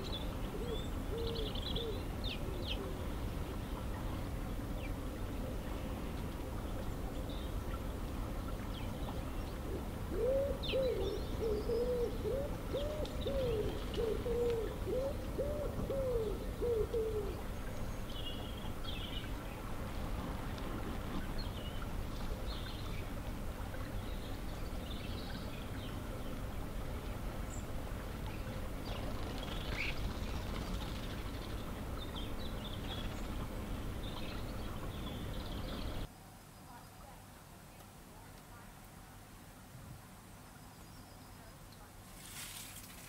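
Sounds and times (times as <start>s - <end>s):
small birds chirping: 0.0s - 19.7s, 21.2s - 37.9s
wood pigeon cooing: 0.5s - 3.0s, 9.7s - 17.4s.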